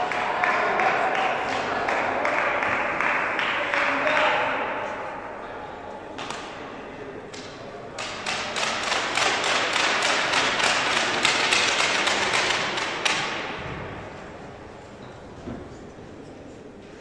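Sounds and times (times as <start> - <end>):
spectators clapping: 0.0 - 4.6, 8.0 - 13.4.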